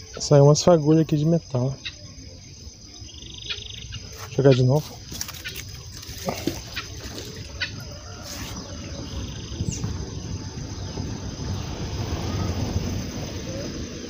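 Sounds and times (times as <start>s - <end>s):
birds calling: 0.0s - 14.0s
wind rumble: 4.9s - 14.0s.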